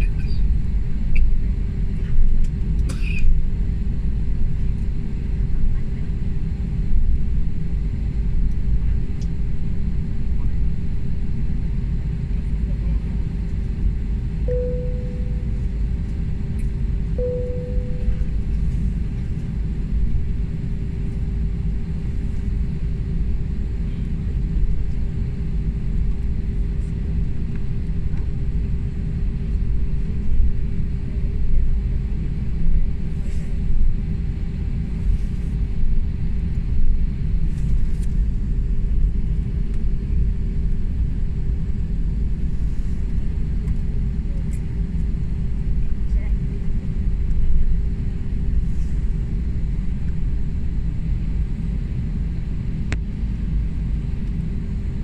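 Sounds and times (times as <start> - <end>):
airliner engine rumble: 0.0 - 55.0
cabin chime tones: 14.5 - 15.5, 17.2 - 18.2.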